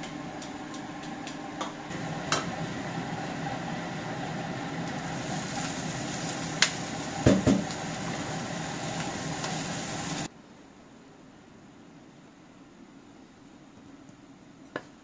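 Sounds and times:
garlic sizzling in oil: 0:01.9 - 0:10.3
vegetables thudding into pan: 0:06.6 - 0:07.8.

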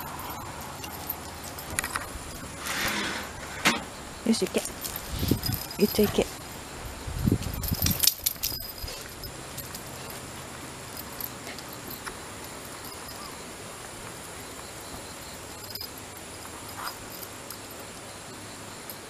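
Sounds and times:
steady background hiss: 0:00.0 - 0:19.0
faint dog sounds: 0:04.2 - 0:06.7.

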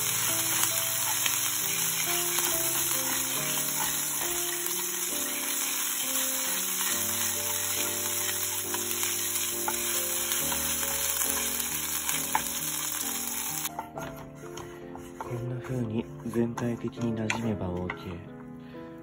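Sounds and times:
oil sizzling in a frying pan: 0:00.0 - 0:15.3
wooden spoon stirring: 0:00.0 - 0:18.6
soft background music: 0:00.0 - 0:19.0.

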